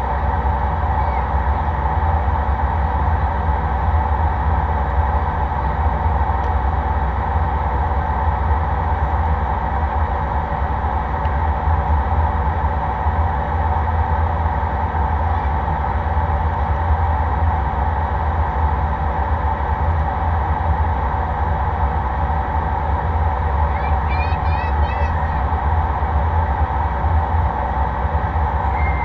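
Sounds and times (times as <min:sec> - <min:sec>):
jet engine cabin rumble: 0:00.0 - 0:29.0.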